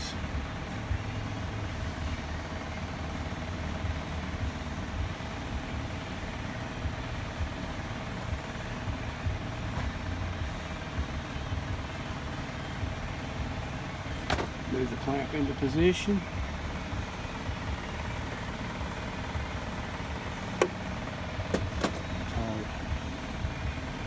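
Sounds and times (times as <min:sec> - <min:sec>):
low machinery hum: 0:00.0 - 0:24.0.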